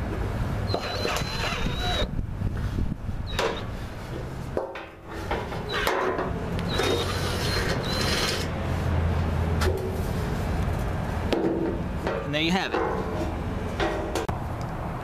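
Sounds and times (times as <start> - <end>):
cordless drill whining: 0.7 - 2.1, 6.7 - 8.5.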